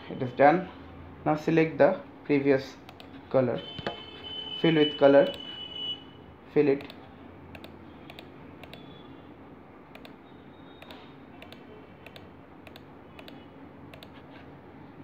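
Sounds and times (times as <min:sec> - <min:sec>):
computer mouse clicking: 0:02.9 - 0:03.1, 0:06.8 - 0:08.9, 0:09.9 - 0:10.2, 0:10.8 - 0:14.3.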